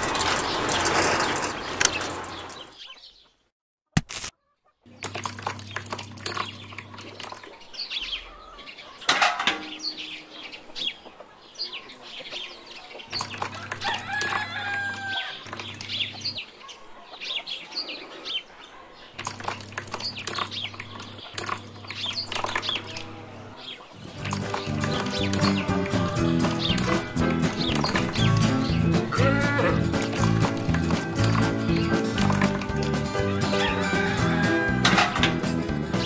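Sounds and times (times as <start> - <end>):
birds chirping: 0.0 - 3.5, 4.4 - 36.0
chicken-like clucking calls: 10.2 - 36.0.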